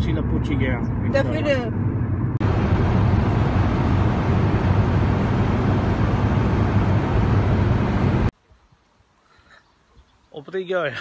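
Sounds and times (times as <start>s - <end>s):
car road noise from inside: 0.0s - 8.3s.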